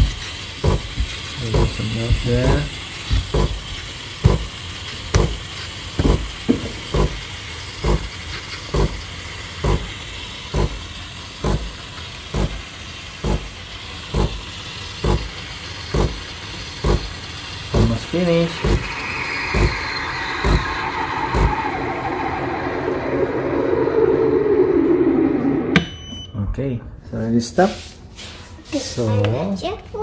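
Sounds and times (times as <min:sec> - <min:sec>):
machine thumping: 0:00.0 - 0:03.6, 0:04.2 - 0:04.5, 0:06.0 - 0:07.2, 0:09.6 - 0:09.9, 0:10.5 - 0:10.8, 0:11.4 - 0:11.7, 0:12.3 - 0:12.6, 0:13.2 - 0:14.4, 0:15.0 - 0:18.0, 0:18.6 - 0:26.3
steam wand hissing: 0:00.0 - 0:25.8.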